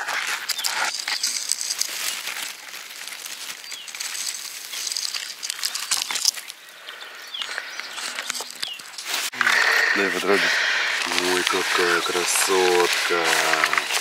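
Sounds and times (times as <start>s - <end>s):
rustling dry material: 0.0s - 6.6s, 7.4s - 14.0s
bird chirps: 3.5s - 10.4s.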